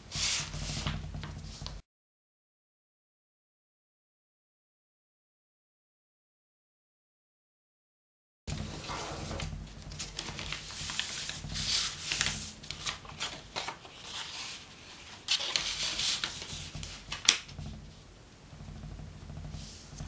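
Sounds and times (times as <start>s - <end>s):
paper rustling and crinkling: 0.1s - 1.8s, 8.5s - 17.8s
paper snap: 15.3s - 17.5s.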